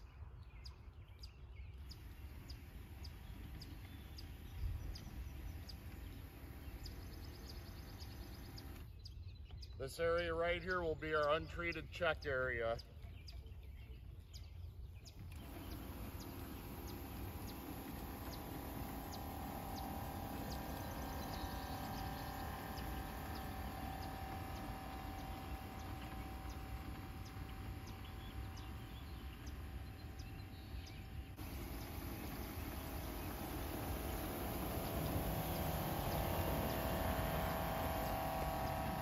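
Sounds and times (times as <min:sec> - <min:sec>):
small birds chirping: 0:00.0 - 0:39.0
sprayer pump humming: 0:01.9 - 0:08.9, 0:15.1 - 0:39.0.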